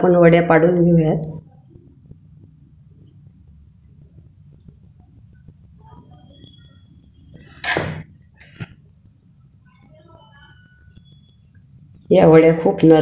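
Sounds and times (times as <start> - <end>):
cricket chirping: 0.0 - 13.0
sharp click: 7.6 - 8.7.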